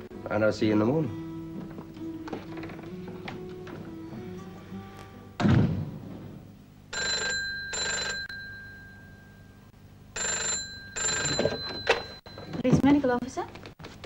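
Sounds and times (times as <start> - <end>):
loud thud: 5.4 - 6.5
telephone bell ringing: 6.9 - 12.8.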